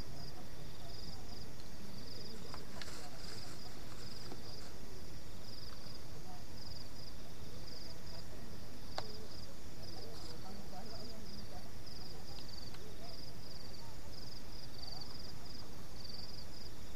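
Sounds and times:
night insects chirping: 0.0s - 16.9s
faint clicks of items handled: 2.4s - 4.8s.

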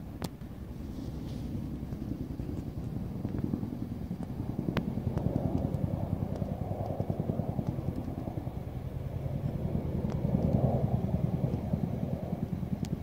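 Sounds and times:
helicopter rotors beating: 0.0s - 13.0s.

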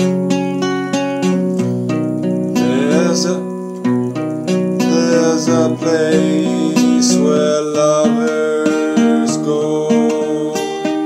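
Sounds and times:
acoustic guitar strumming: 0.0s - 11.0s
man singing: 2.6s - 3.6s, 4.8s - 11.0s.

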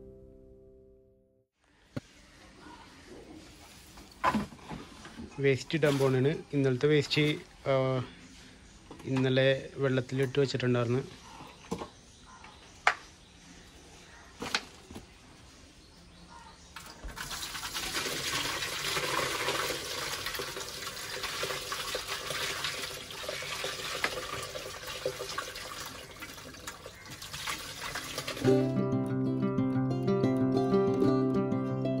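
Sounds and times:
watery waste pouring and splashing: 16.8s - 28.5s.

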